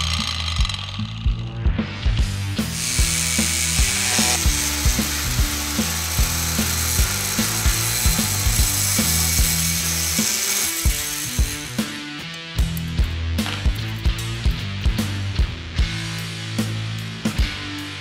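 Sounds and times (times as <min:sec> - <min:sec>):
saw blade buzzing into wood: 0:00.0 - 0:01.2, 0:02.6 - 0:12.3
background music with drum beat: 0:00.0 - 0:18.0.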